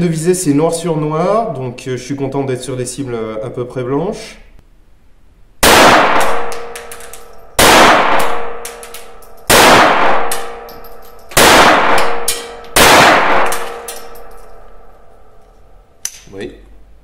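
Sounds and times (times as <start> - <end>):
pistol shots ringing: 5.6 - 15.4.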